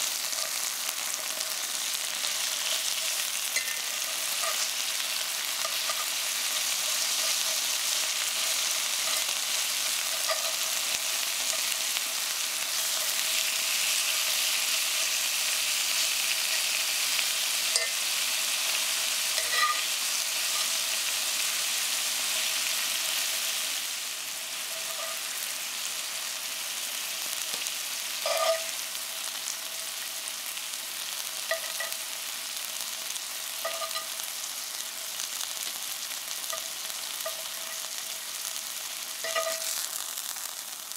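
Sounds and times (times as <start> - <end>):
chicken sizzling in a skillet: 0.0 - 40.9
metal tongs clinking on pan: 3.0 - 4.7, 5.4 - 11.8, 17.6 - 18.0, 19.4 - 20.8, 24.7 - 25.2, 28.2 - 28.7, 31.5 - 32.0, 33.6 - 34.2, 36.5 - 37.8, 39.2 - 39.8.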